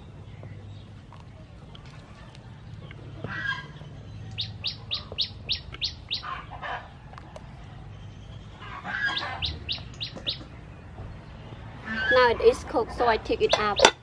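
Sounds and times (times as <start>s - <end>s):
songbird calling: 2.7s - 12.5s, 13.4s - 14.0s.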